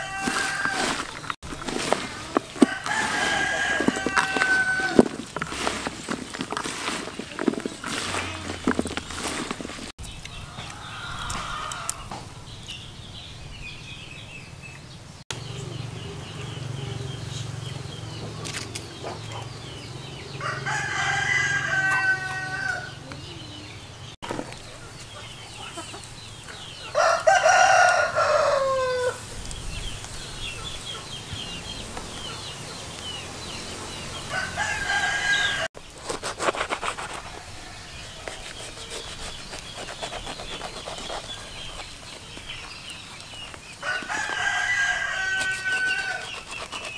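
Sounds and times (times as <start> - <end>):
rooster crowing: 0.0 - 1.1, 2.6 - 5.1, 10.4 - 12.2, 20.2 - 23.0, 26.9 - 29.2, 34.1 - 35.7, 43.8 - 46.4.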